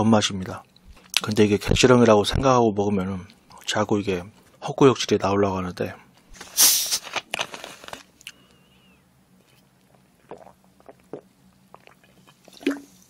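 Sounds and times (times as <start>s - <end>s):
bottle opening hiss: 6.4s - 7.2s
man gulping: 9.8s - 12.9s.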